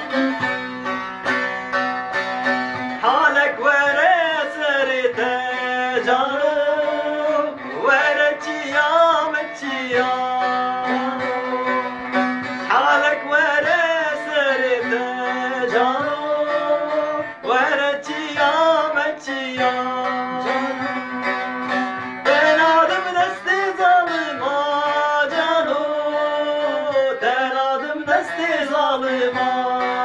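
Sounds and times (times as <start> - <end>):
long-necked lute strummed: 0.0 - 30.0
men singing folk song: 2.9 - 30.0.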